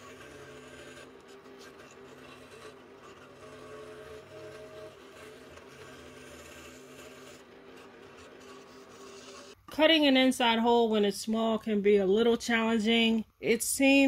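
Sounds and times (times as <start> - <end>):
scroll saw humming: 0.0 - 9.6.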